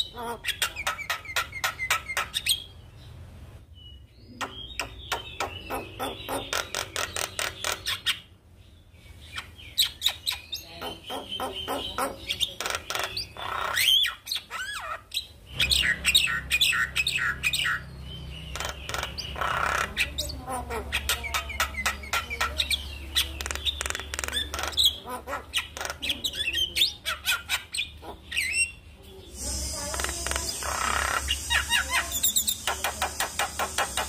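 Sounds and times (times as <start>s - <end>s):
myna singing clicks and whistles: 29.4s - 34.0s.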